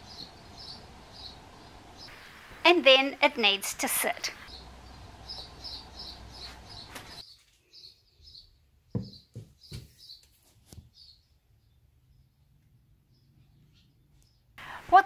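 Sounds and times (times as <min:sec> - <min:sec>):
small bird chirping: 0:00.0 - 0:02.2, 0:04.4 - 0:14.6
sharp knocks and taps: 0:09.0 - 0:10.0.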